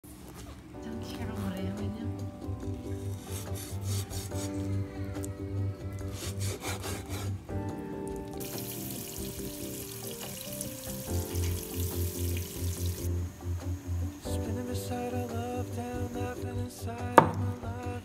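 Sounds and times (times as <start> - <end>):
instrumental background music: 0.6 - 18.0
tap water running into basin: 8.1 - 13.1
cleaver chopping on wooden board: 17.2 - 17.6.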